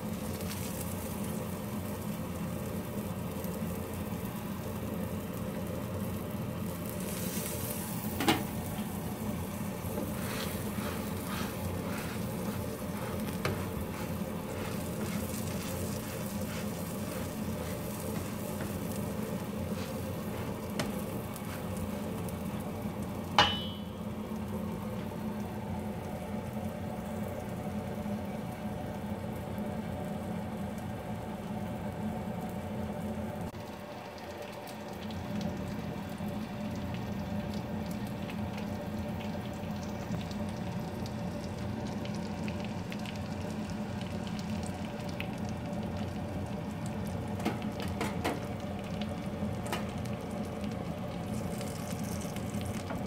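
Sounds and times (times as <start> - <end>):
food sizzling in oil: 0.0 - 53.0
utensil clacking against pan: 23.4 - 23.9.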